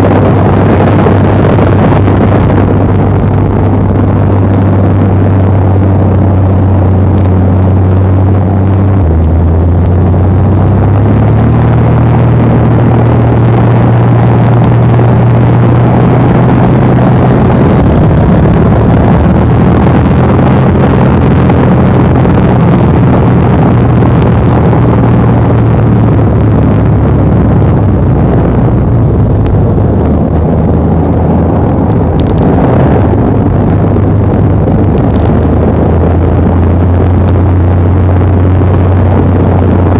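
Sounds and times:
propeller plane engine droning: 0.0 - 39.9
rushing air: 0.0 - 39.9.

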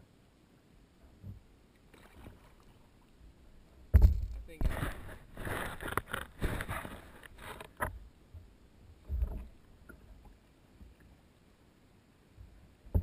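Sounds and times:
faint water sounds: 0.0 - 13.0
paddle splashing in water: 1.9 - 3.0.

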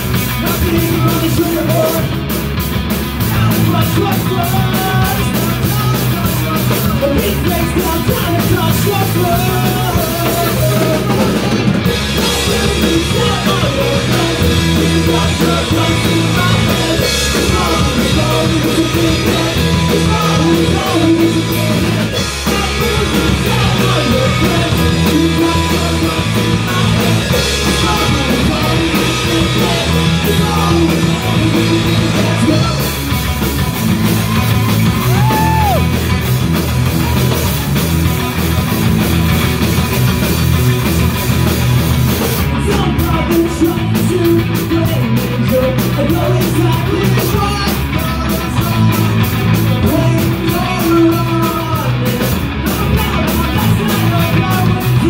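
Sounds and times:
bass guitar: 0.0 - 55.0
drum kit: 0.0 - 55.0
electric guitar: 0.0 - 55.0
person singing: 3.2 - 33.0, 34.8 - 36.1, 42.4 - 55.0.

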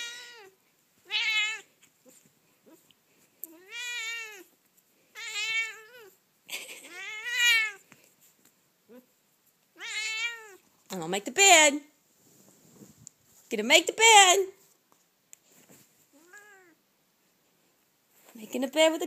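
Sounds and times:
cat meowing: 0.0 - 1.7, 3.4 - 6.2, 6.8 - 7.8, 9.7 - 10.6, 16.2 - 16.8.

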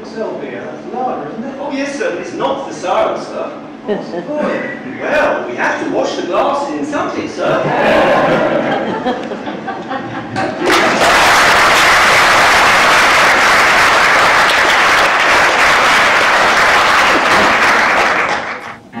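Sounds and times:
audience applauding: 10.3 - 18.8.

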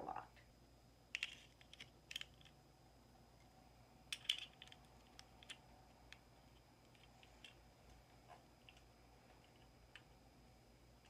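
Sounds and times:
plastic parts clicking: 1.1 - 2.6, 4.1 - 6.2.

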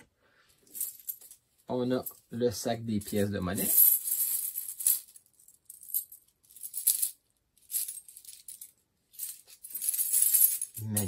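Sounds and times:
metal coins clinking: 0.7 - 1.4, 3.1 - 11.0.

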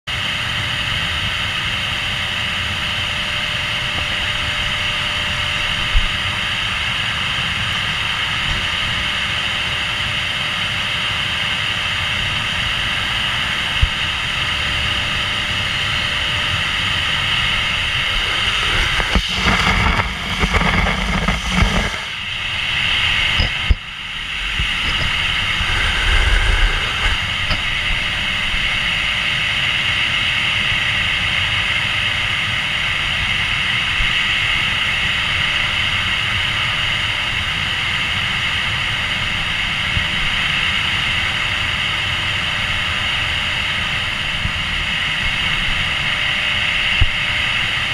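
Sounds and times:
vacuum cleaner running: 12.2 - 31.8.

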